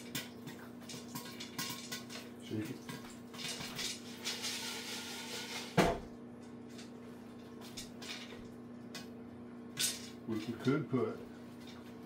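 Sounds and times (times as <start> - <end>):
popcorn kernels rattling in pot: 3.4 - 5.8.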